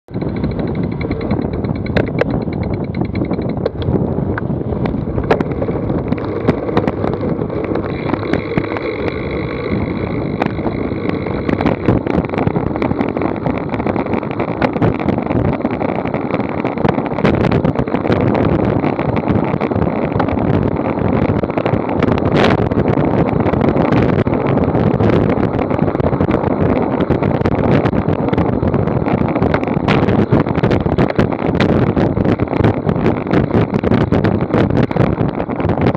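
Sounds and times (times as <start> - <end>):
clicks and rattles over bumps: 0.1 - 35.9
wind buffeting microphone: 0.1 - 35.9
tyres rolling rumble: 3.5 - 35.9.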